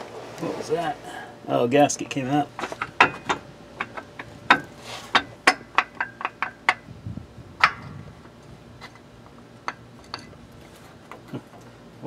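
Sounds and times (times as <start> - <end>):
sharp metal clicks and knocks: 2.5 - 6.9, 7.6 - 7.9.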